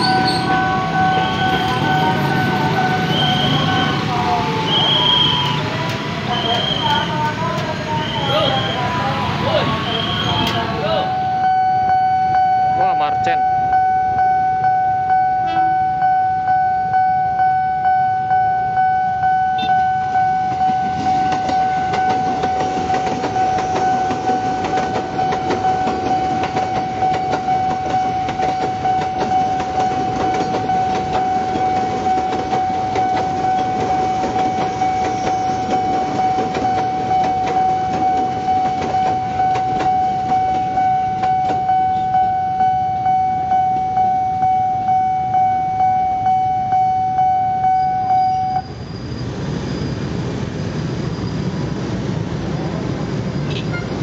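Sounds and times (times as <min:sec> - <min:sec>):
level crossing alarm tone: 0:00.0 - 0:48.7
train wheels clattering on rails: 0:20.5 - 0:41.7.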